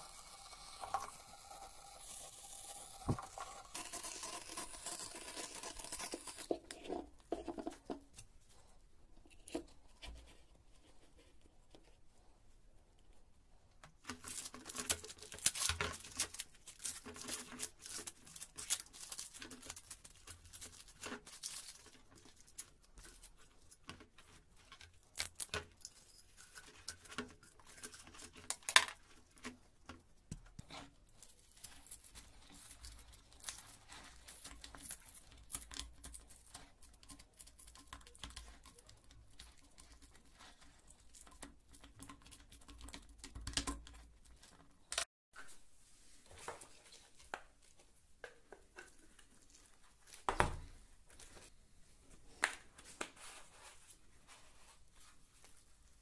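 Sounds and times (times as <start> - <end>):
paper crinkling: 14.0 - 24.4.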